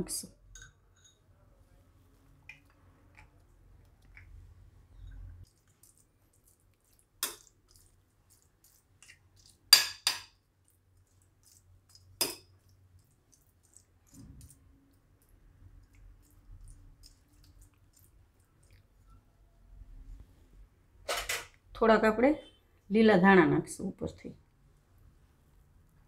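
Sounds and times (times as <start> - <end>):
spoon clinking against glass bowl: 0.5 - 1.3.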